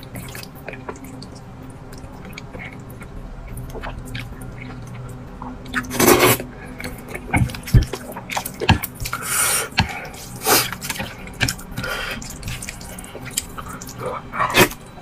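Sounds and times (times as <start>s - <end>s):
moist chewing: 0.0s - 15.0s
wet noodle slurps: 5.7s - 6.5s, 7.4s - 14.8s.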